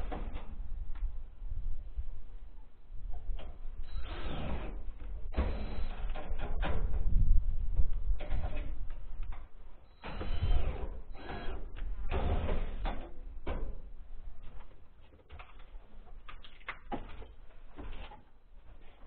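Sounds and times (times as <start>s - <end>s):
cordless drill whirring: 3.9s - 6.2s, 10.0s - 12.8s.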